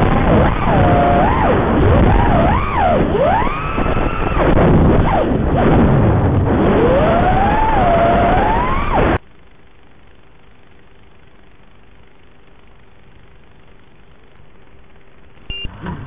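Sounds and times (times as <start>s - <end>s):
drone motors whining: 0.0s - 9.2s
faint steady hum: 0.0s - 16.0s.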